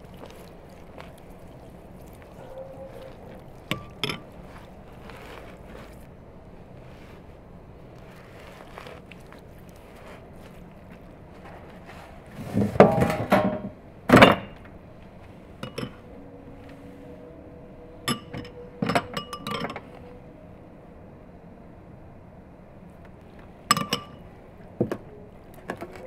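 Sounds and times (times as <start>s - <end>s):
spoon clinking ceramic bowl: 2.9s - 5.4s, 15.6s - 16.0s, 18.1s - 20.0s, 23.7s - 24.2s.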